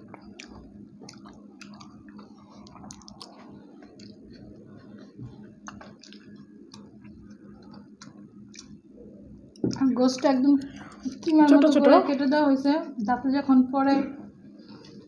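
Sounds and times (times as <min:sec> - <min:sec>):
chewing and mouth smacking: 0:00.0 - 0:08.8
faint steady hum: 0:00.0 - 0:15.0.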